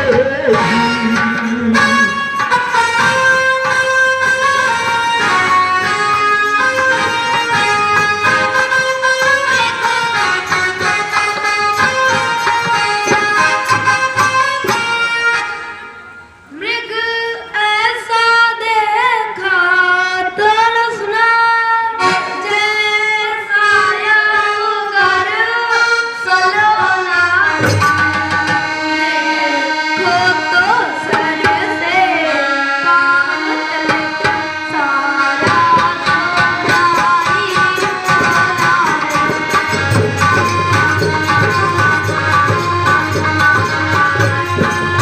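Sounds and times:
person singing live: 0:00.0 - 0:02.4
sustained accompanying instrument: 0:00.0 - 0:45.0
drumming: 0:35.4 - 0:45.0.

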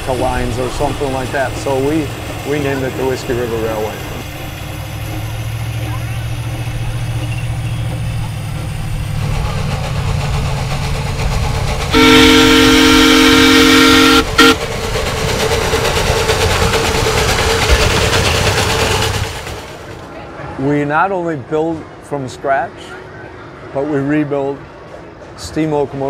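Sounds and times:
steam locomotive running: 0:00.0 - 0:20.5
steam whistle: 0:11.9 - 0:14.6.

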